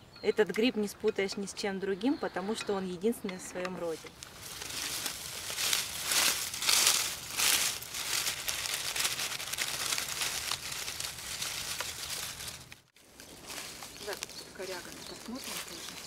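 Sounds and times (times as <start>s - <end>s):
dry leaves rustling and crinkling: 3.8s - 16.0s.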